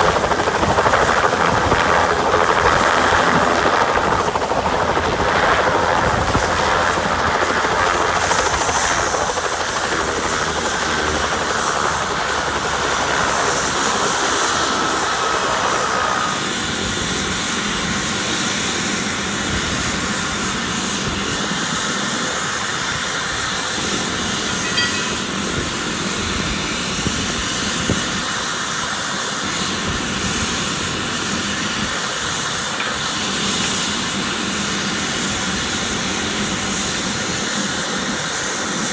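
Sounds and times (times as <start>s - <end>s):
constant rushing noise: 0.0s - 38.9s
helicopter turbine whine: 0.0s - 38.9s
mid-pitched tone: 24.6s - 25.4s.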